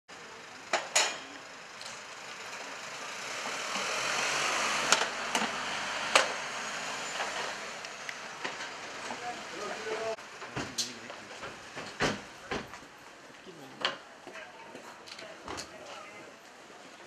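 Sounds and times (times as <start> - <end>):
van driving past: 1.4 - 10.2.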